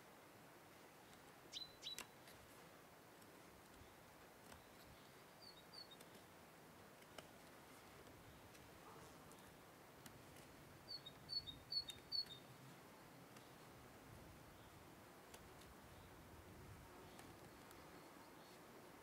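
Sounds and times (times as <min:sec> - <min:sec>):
faint high bird chirps: 0:01.5 - 0:02.2, 0:04.6 - 0:06.1, 0:10.9 - 0:13.6.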